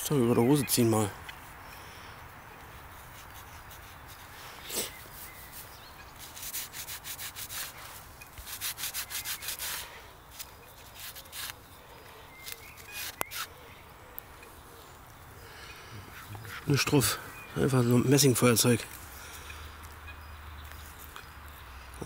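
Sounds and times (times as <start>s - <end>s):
lighter rubbing against fabric: 3.0s - 11.6s, 12.4s - 13.5s.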